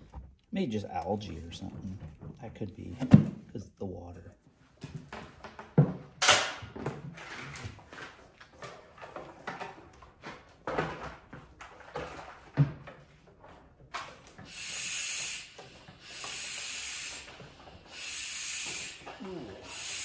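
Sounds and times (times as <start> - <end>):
hissing spray bursts: 14.4 - 20.0.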